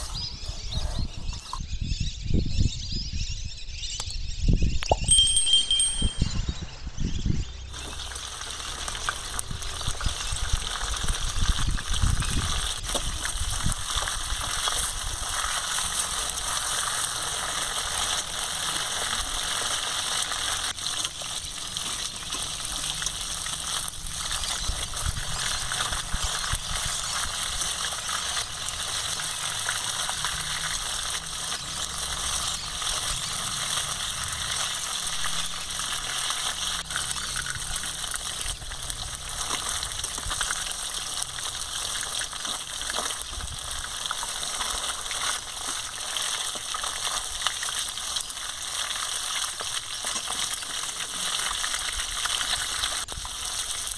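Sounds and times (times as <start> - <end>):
high electronic ding: 4.8 - 7.3
fish frying in hot oil: 7.7 - 53.9.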